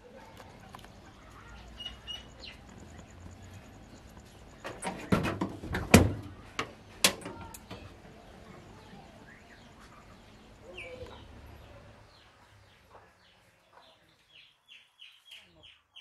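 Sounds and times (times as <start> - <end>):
tin door rattling and knocking: 4.7 - 6.4.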